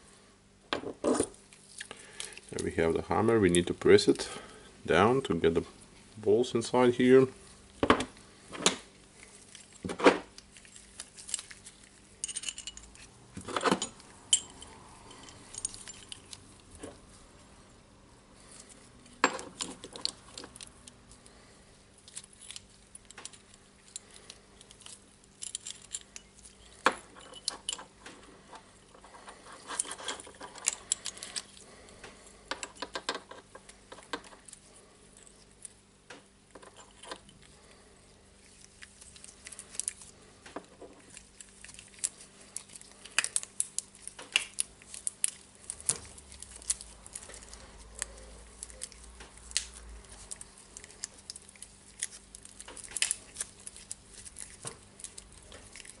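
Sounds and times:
small steel parts clinking: 0:11.0 - 0:16.4, 0:22.2 - 0:28.0, 0:28.9 - 0:31.6.

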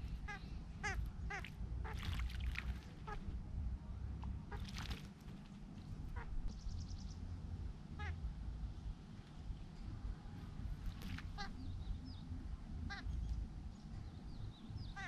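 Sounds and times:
steady low rumble: 0:00.0 - 0:15.0
bird splashing in water: 0:01.3 - 0:03.2, 0:04.5 - 0:05.6, 0:10.9 - 0:11.5.

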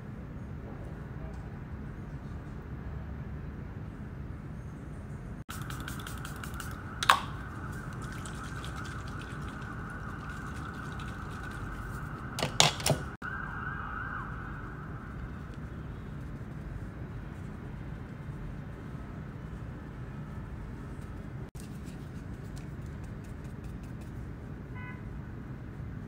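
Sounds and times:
spray bottle spritzing: 0:05.5 - 0:09.6.

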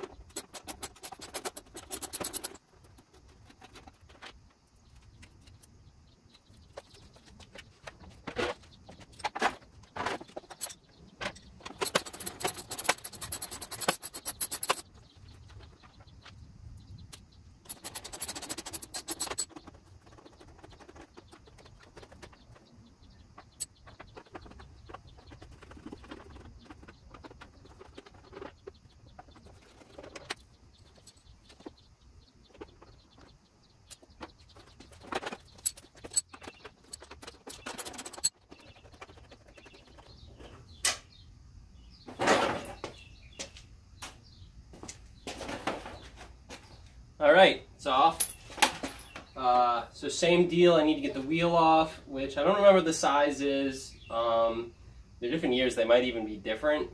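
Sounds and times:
metal hand tools clicking and rattling: 0:00.0 - 0:02.6, 0:10.4 - 0:14.8, 0:17.6 - 0:20.9, 0:34.6 - 0:39.7.

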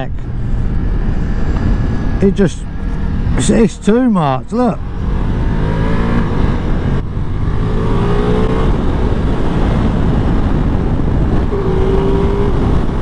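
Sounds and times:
wind rumble on microphone: 0:00.0 - 0:03.8, 0:04.4 - 0:13.0
motorcycle engine accelerating: 0:04.6 - 0:13.0.

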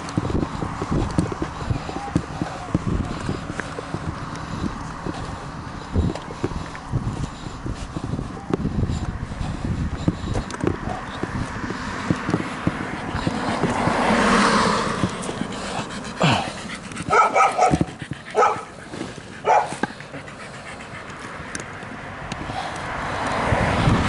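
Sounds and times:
small dog barking: 0:17.1 - 0:18.7, 0:19.4 - 0:19.8.

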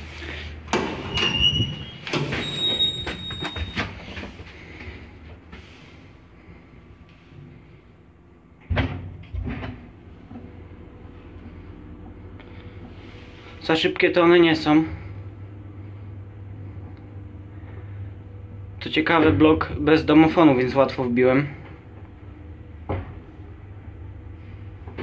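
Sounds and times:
lift low steady hum: 0:00.0 - 0:25.0
lift doors clattering and knocking: 0:00.7 - 0:04.3.

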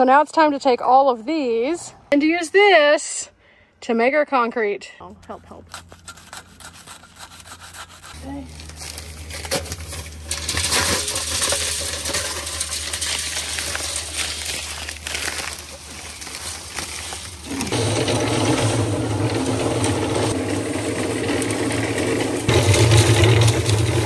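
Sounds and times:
concrete mix tumbling: 0:05.6 - 0:24.0
concrete mixer running: 0:05.7 - 0:24.0
water pouring into drum: 0:10.2 - 0:24.0.

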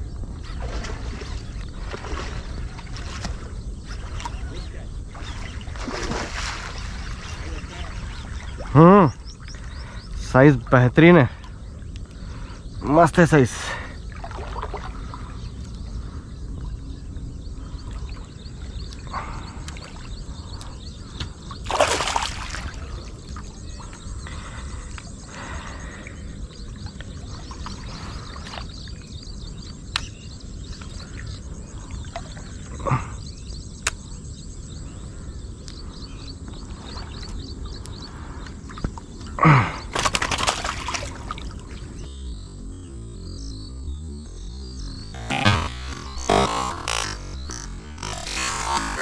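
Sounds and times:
steady low rumble: 0:00.0 - 0:39.4, 0:41.0 - 0:49.0
small birds chirping: 0:00.0 - 0:49.0
water splashing: 0:00.5 - 0:09.1, 0:14.0 - 0:15.6, 0:17.8 - 0:24.4, 0:38.7 - 0:42.1
fish splashing at water surface: 0:21.6 - 0:23.2, 0:39.9 - 0:41.7.

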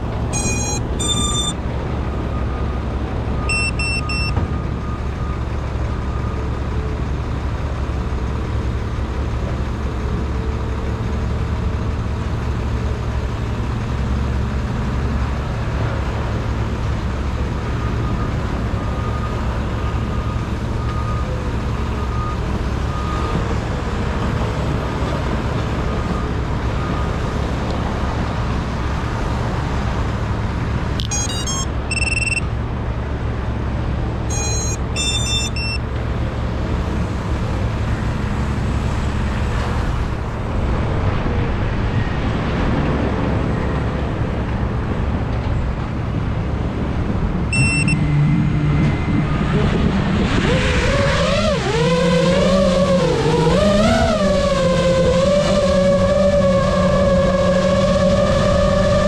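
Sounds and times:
electronic beeps: 0:00.3 - 0:01.6, 0:03.4 - 0:04.4, 0:31.0 - 0:32.5, 0:34.3 - 0:35.8, 0:47.5 - 0:48.2.

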